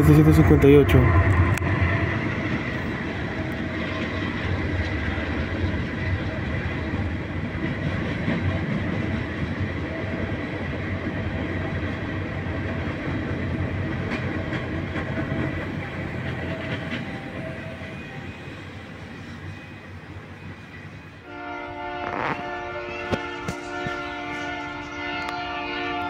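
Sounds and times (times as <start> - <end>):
train wheels rumbling on rail: 0.0 - 26.0
wheels clacking over rail joints: 2.5 - 18.2.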